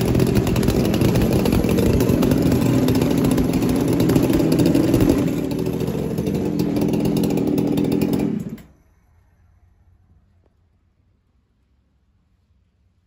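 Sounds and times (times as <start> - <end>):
chainsaw engine running: 0.0 - 8.8.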